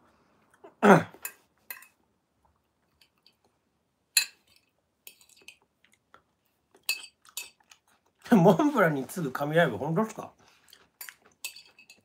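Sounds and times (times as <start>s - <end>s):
wet chewing and mouth smacks: 5.4s - 8.3s, 10.5s - 11.4s.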